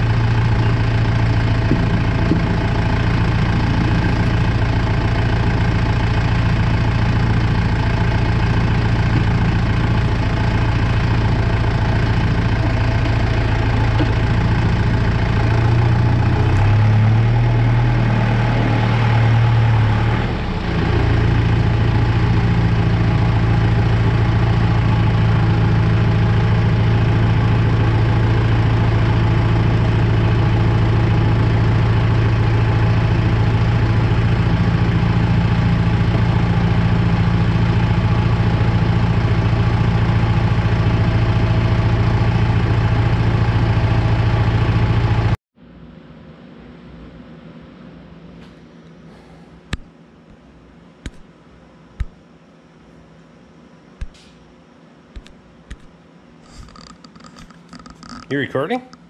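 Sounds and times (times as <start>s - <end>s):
tractor diesel engine running: 0.0s - 45.4s.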